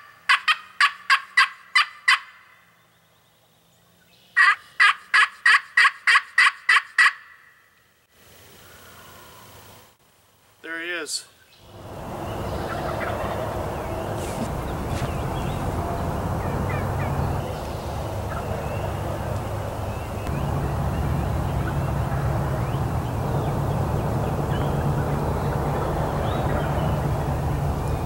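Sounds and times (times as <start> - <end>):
distant turkey gobbling: 0.0 - 2.6, 4.4 - 7.6, 11.6 - 28.0
songbird chirps: 2.5 - 4.8, 8.5 - 28.0
steady low rumble: 11.7 - 28.0.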